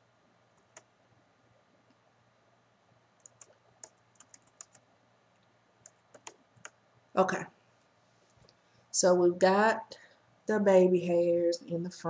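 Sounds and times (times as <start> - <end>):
light computer clicks: 3.2 - 4.8, 5.8 - 6.8.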